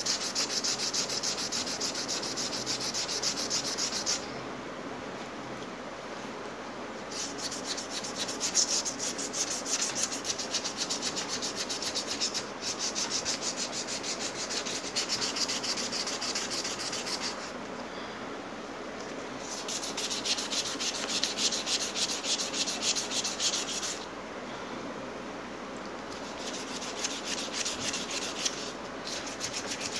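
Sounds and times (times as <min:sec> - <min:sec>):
sandpaper scratching on metal: 0:00.0 - 0:04.2, 0:07.1 - 0:17.5, 0:19.4 - 0:24.0, 0:26.2 - 0:29.9.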